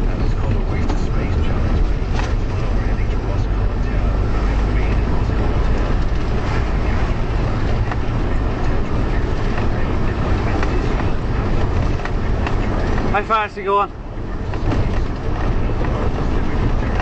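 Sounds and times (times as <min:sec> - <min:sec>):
cab rattles and knocks: 0:00.0 - 0:03.5, 0:14.2 - 0:17.0
lorry engine and road rumble: 0:00.0 - 0:17.0.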